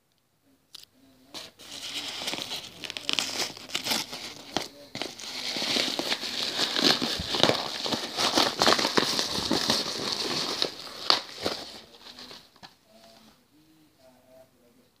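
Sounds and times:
padded mailer crinkling: 1.4 - 12.8.

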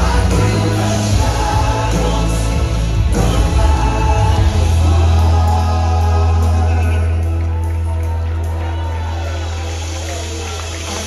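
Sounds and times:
group singing worship song: 0.0 - 7.6
bass line: 0.0 - 11.0
keyboard: 0.0 - 11.0.

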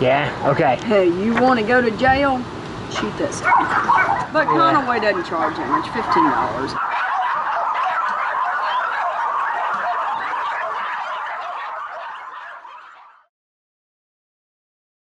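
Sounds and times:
many dogs barking: 3.0 - 13.3.

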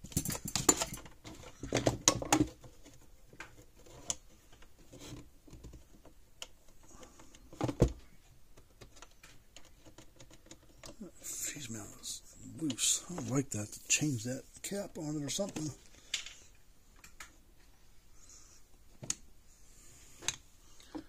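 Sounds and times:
clatter of hand tools on workbench: 0.0 - 2.7.

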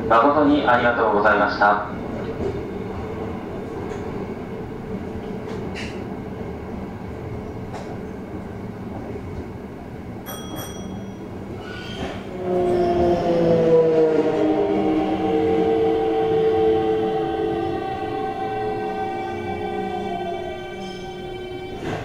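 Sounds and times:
train running on rails: 0.0 - 22.0
train motor whine: 11.6 - 22.0.

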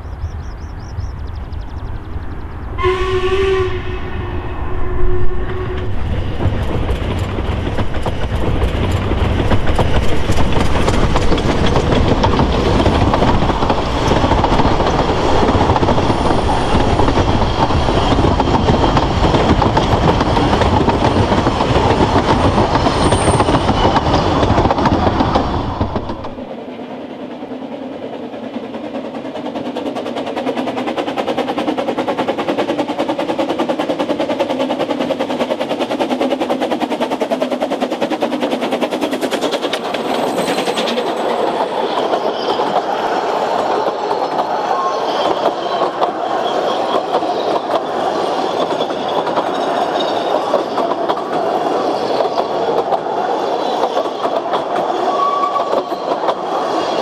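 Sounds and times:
train rumble and rail clatter: 0.0 - 57.0
steam locomotive whistle: 2.8 - 6.1, 55.1 - 55.8.

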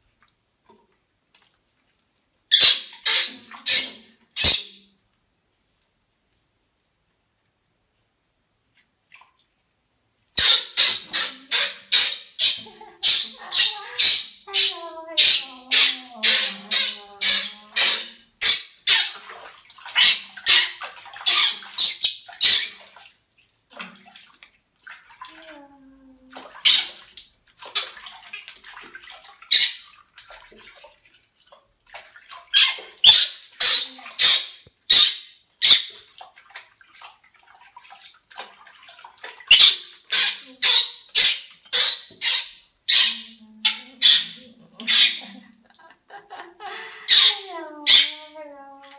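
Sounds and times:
water splashing in washbasin: 0.0 - 5.2, 8.6 - 48.9
baby monkey crying: 10.4 - 19.2, 39.5 - 45.4, 46.8 - 48.9.

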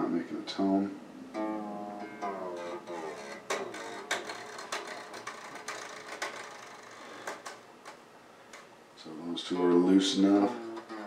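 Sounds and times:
faint guitar string tone: 0.6 - 7.6, 9.5 - 11.0
guitar strings rattling on frets: 1.3 - 8.7, 9.8 - 11.0.

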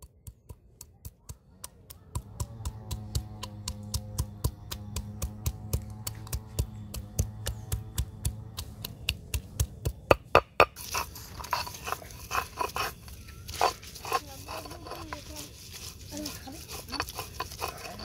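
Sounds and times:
stone grinding garlic: 0.0 - 18.0
stone knocking on grinding slab: 2.2 - 10.8.

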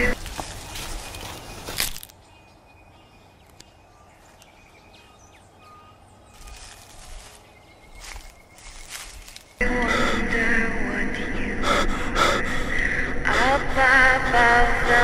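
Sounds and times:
faint bird chirps: 2.3 - 9.6
low outdoor rumble: 6.0 - 15.0
rustling: 6.4 - 9.6.

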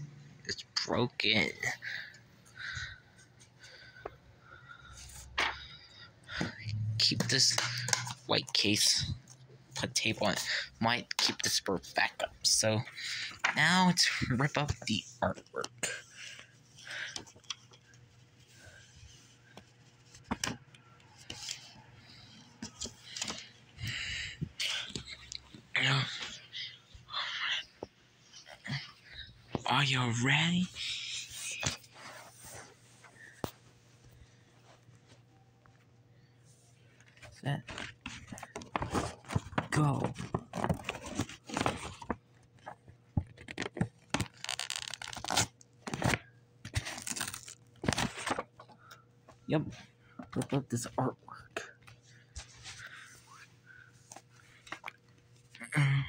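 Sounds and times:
low steady hum: 0.0 - 56.0
paper handling noise: 13.0 - 26.4, 36.9 - 49.4
paper tearing: 43.4 - 48.4.

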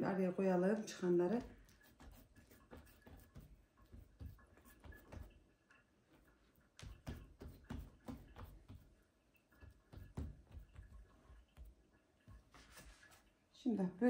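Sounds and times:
hands patting dough on wooden table: 1.2 - 5.4, 6.6 - 13.2.

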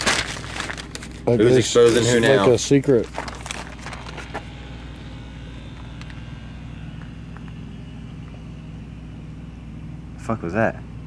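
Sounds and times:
vehicle engine idling: 0.0 - 11.0.

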